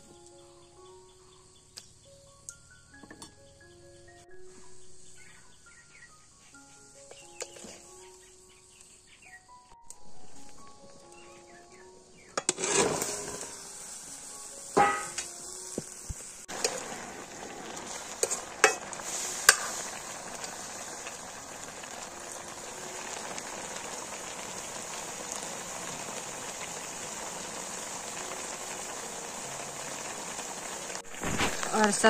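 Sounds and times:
vegetables sizzling in hot oil: 0:04.7 - 0:09.2, 0:10.1 - 0:32.0
sharp knocks on wok: 0:14.8 - 0:15.2.

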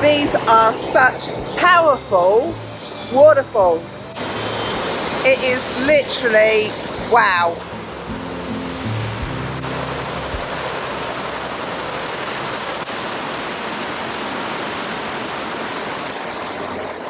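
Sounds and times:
waterfall rushing: 0:07.6 - 0:17.0.

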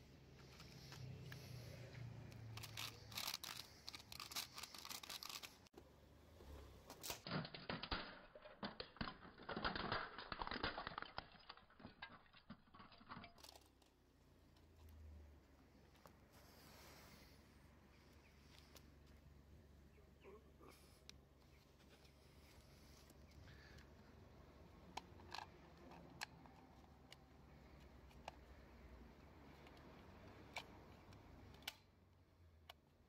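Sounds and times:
plastic toy clicking and rattling: 0:02.3 - 0:05.7, 0:06.9 - 0:14.0, 0:24.8 - 0:31.9.

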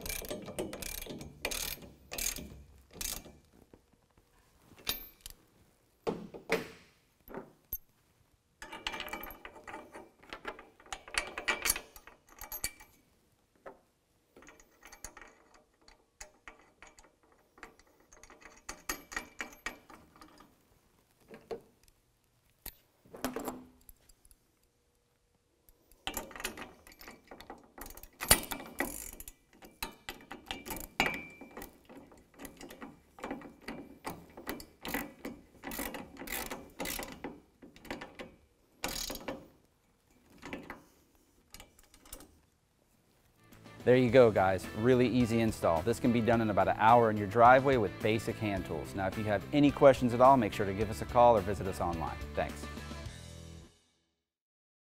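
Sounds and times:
hand ratchet clicking: 0:00.0 - 0:03.4, 0:25.9 - 0:39.4.

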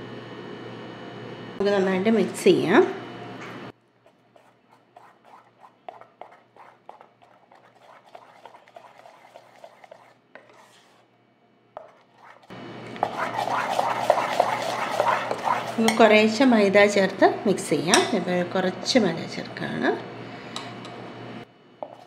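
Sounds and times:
metal spoon scraping steel bowl: 0:04.1 - 0:11.0, 0:11.8 - 0:16.2.

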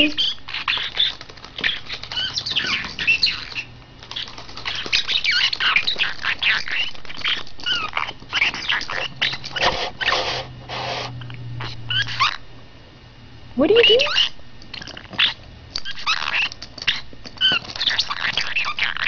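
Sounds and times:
parrot chattering and squawking: 0:00.0 - 0:12.4, 0:13.7 - 0:19.0
scratchy clicks: 0:00.7 - 0:10.3.

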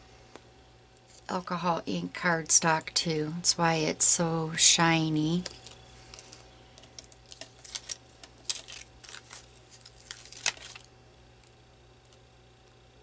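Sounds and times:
light clicks and crinkling rustles: 0:05.4 - 0:12.8
paper peeling off plastic liner: 0:06.9 - 0:10.9.

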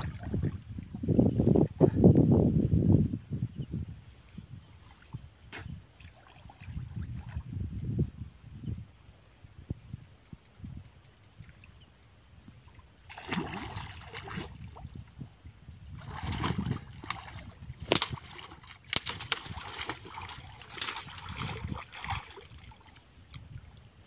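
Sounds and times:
water splashing from wading: 0:12.7 - 0:14.8, 0:16.0 - 0:23.0.

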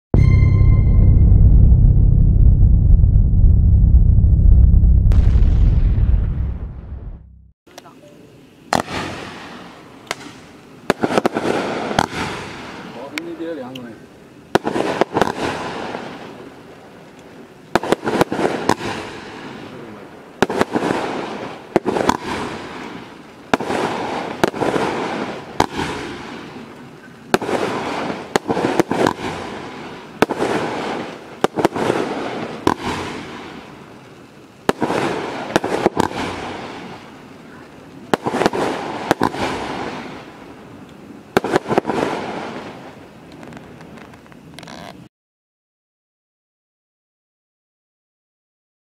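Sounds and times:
firework crackling: 0:00.2 - 0:07.2, 0:07.8 - 0:45.1
firework bangs: 0:00.2 - 0:07.4, 0:08.7 - 0:13.7, 0:14.5 - 0:16.6, 0:17.7 - 0:34.0, 0:34.6 - 0:44.5.

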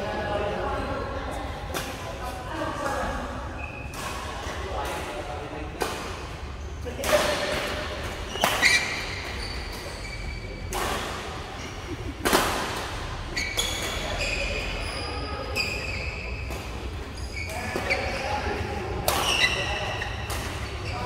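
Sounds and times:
rackets hitting shuttlecock: 0:06.9 - 0:11.4, 0:12.1 - 0:14.0, 0:18.9 - 0:21.0.

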